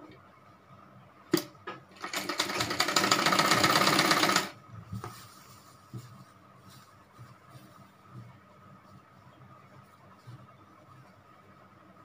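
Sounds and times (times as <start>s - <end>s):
sewing machine stitching: 2.0s - 4.6s.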